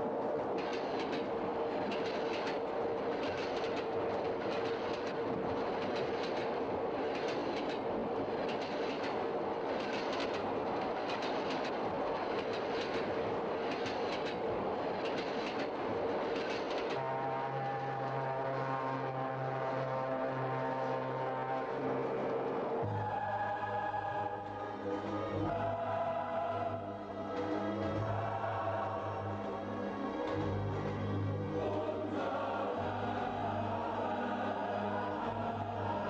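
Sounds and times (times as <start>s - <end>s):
train rumbling on track: 0.0s - 36.0s
wheels clickety-clack: 0.5s - 17.0s
train horn: 16.9s - 29.8s.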